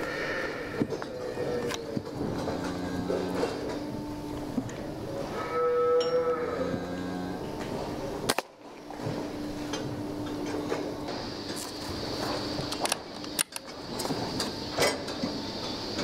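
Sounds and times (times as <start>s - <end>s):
cow mooing: 0.0s - 3.7s, 5.2s - 7.6s.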